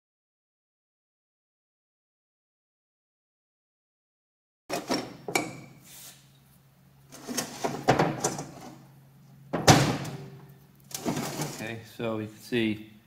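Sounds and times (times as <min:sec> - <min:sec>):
heavy metal casting clunking: 0:09.5 - 0:11.6.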